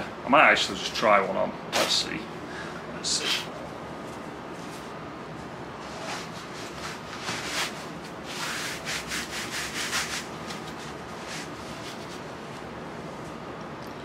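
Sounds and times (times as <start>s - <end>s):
knee sleeve rubbing against skin: 5.8s - 12.6s.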